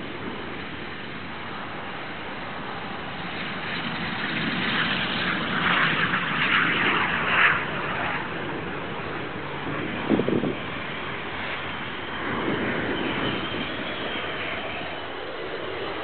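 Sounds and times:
jet engine rushing: 0.0s - 16.0s.

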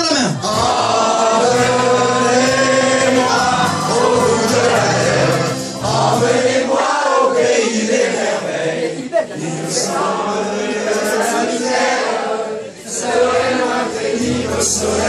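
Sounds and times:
backing music: 0.0s - 7.0s, 13.2s - 15.0s
crowd singing: 0.1s - 15.0s.

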